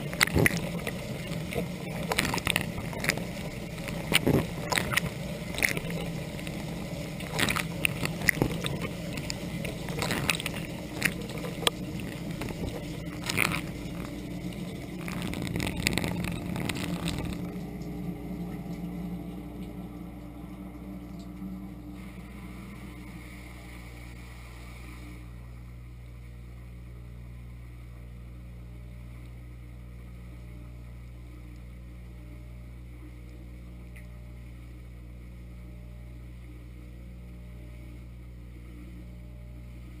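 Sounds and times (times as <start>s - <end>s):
water jets spattering: 0.0s - 23.7s
pump hum: 0.0s - 40.0s.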